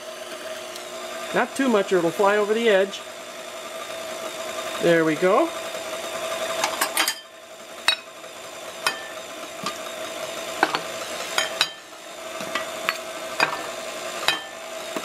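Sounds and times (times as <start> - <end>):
stand mixer motor hum: 0.0 - 15.0
beater clicking and knocking in bowl: 8.8 - 9.8.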